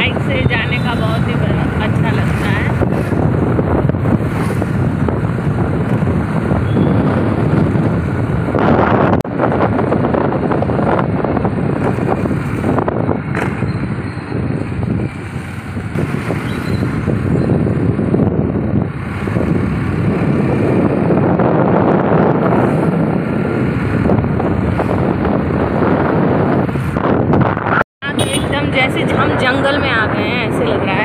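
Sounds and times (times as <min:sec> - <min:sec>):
road noise: 0:00.0 - 0:31.0
wind buffeting microphone: 0:00.0 - 0:31.0
motorbike engine: 0:09.7 - 0:26.9.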